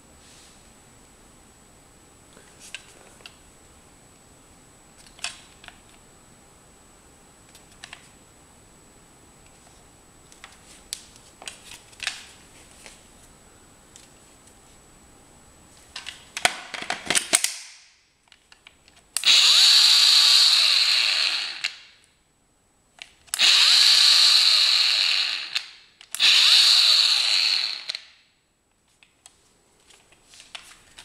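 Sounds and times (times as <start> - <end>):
angle grinder whining: 19.2 - 21.9, 23.4 - 28.1.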